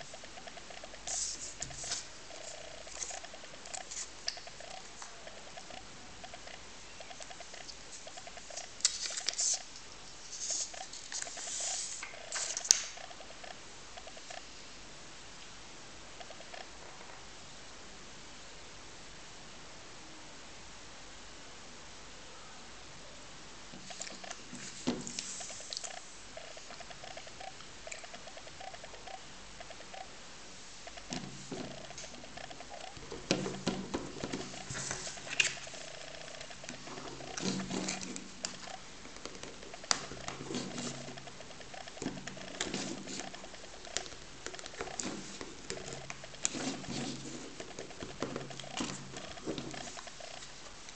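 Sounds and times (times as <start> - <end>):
fingertips rubbing on screen: 0.0 - 13.5, 23.8 - 30.1, 30.8 - 50.8
steady hiss: 0.0 - 50.9
plastic film peeling rustles: 7.6 - 13.0, 33.5 - 35.8.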